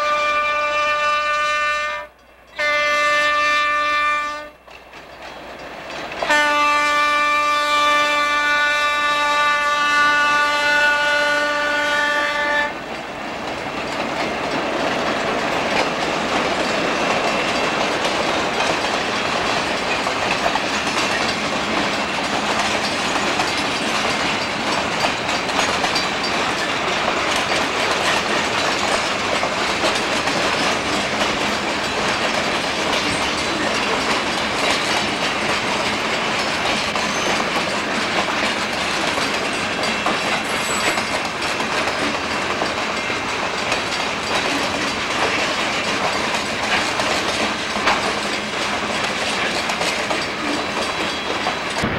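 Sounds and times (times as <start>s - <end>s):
locomotive horn: 0.0s - 4.6s, 6.2s - 12.8s
freight train running on rails: 0.0s - 51.9s.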